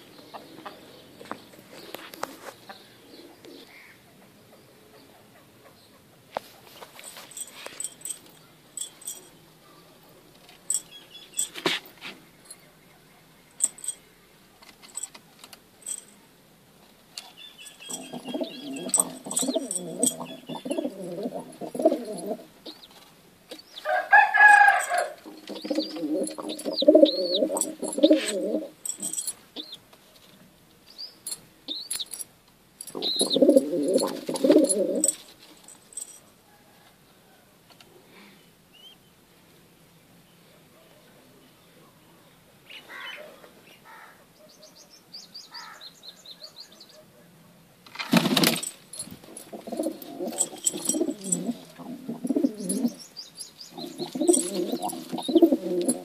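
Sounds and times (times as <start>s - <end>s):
pigeons cooing: 17.8s - 22.8s, 23.9s - 29.3s, 32.9s - 35.2s, 49.4s - 53.0s, 53.7s - 56.0s.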